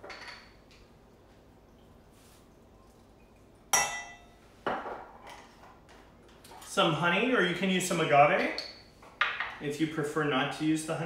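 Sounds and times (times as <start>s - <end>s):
kitchenware clinking: 0.0s - 0.6s, 3.7s - 5.7s.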